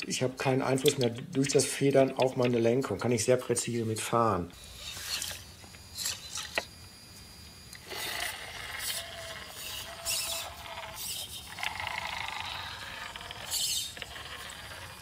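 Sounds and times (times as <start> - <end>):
toy truck motor whining: 4.6 - 6.7, 7.7 - 15.0.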